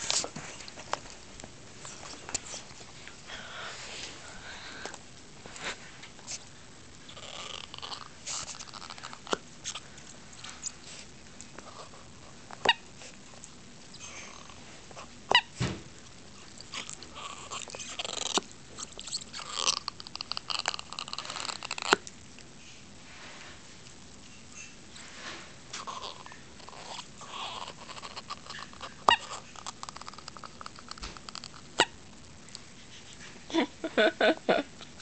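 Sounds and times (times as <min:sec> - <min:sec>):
rubber toy squeaks: 0:15.3 - 0:15.5
dog chewing rubber toy: 0:25.8 - 0:32.0.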